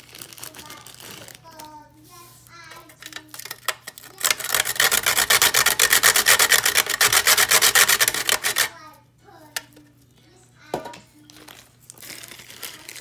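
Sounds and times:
wooden stick grating on metal: 4.1 - 8.7.

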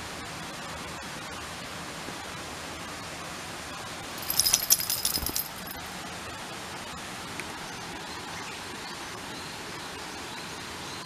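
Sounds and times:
dog collar jingling: 4.2 - 5.9.

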